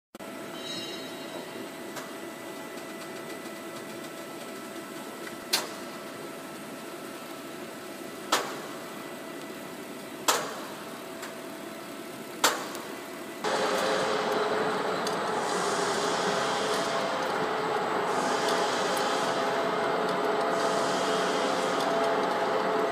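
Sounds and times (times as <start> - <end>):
hissy machine whir: 0.2 - 22.9
lathe humming: 13.4 - 22.9
sharp machine clacks: 13.4 - 22.9.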